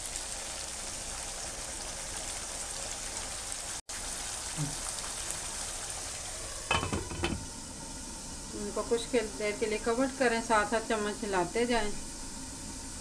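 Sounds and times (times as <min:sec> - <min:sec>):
food sizzling in a pan: 0:00.0 - 0:13.0
glass lid knocking on pan: 0:06.7 - 0:07.4.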